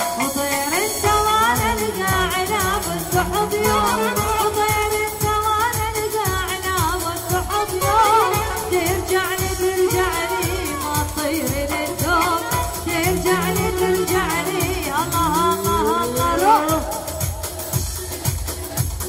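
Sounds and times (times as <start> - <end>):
woman singing: 0.0 - 17.8
band with drum beat: 0.0 - 19.0.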